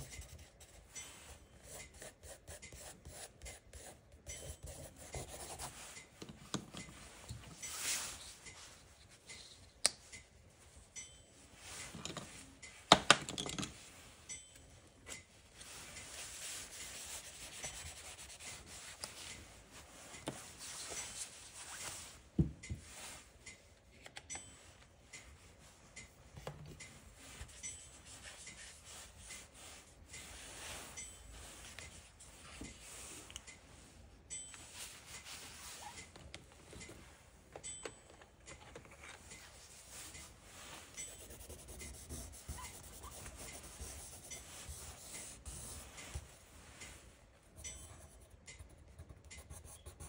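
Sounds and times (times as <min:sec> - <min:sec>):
pencil scratching on paper: 0:01.6 - 0:05.8, 0:41.0 - 0:46.0, 0:47.6 - 0:50.0.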